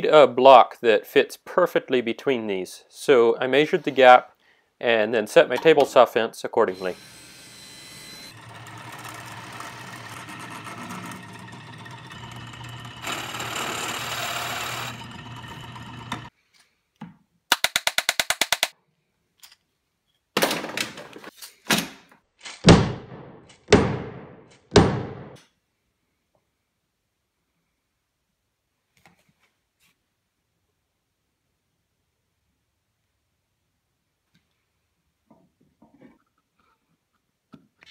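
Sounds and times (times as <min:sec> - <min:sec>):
table saw cutting wood: 0:06.7 - 0:16.3
quick clicks: 0:17.5 - 0:18.7.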